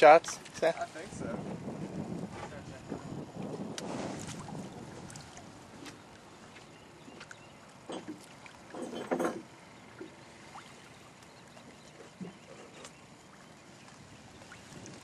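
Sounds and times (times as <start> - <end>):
water lapping against boat: 0.0 - 15.0.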